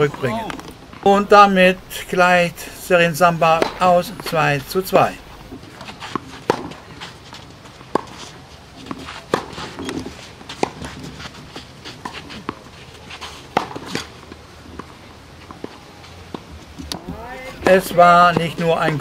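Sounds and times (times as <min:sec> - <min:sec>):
rackets striking tennis ball: 0:03.4 - 0:04.4, 0:05.4 - 0:07.2, 0:07.8 - 0:11.2, 0:13.5 - 0:14.1, 0:16.3 - 0:19.0.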